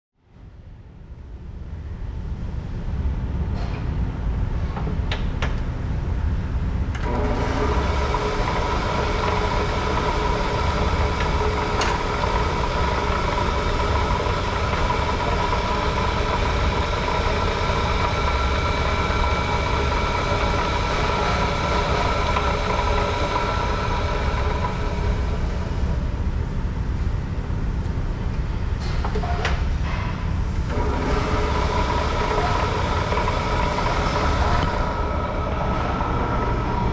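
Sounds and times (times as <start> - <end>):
band saw motor rumble: 6.2 - 28.9, 29.8 - 36.9
high steady whine: 29.8 - 36.9.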